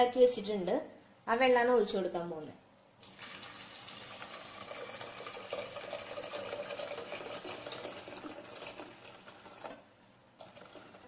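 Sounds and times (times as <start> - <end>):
water pouring from a kettle: 3.0 - 11.0.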